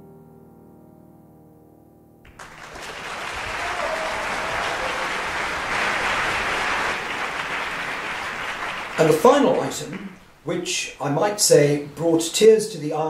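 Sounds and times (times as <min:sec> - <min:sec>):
audience applause: 0:02.3 - 0:10.2.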